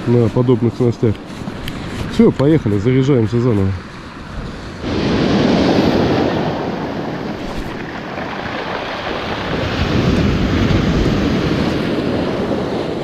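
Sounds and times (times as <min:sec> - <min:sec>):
surf washing on beach: 0:00.0 - 0:13.0
wind buffeting microphone: 0:00.0 - 0:13.0.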